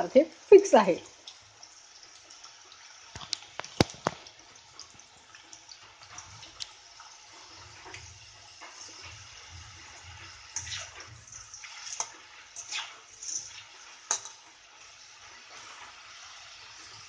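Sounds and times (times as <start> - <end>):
peas sizzling in hot oil: 0.0 - 17.0
oil popping and crackling: 1.2 - 14.7.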